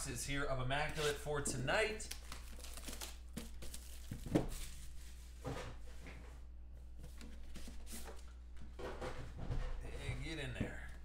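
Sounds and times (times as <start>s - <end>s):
shrink-wrap and cardboard rustling: 2.0s - 5.2s.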